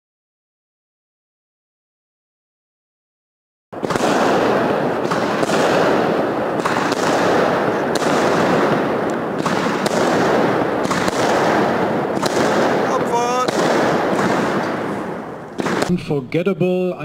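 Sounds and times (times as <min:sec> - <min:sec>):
fireworks crackling and banging: 0:03.8 - 0:16.2.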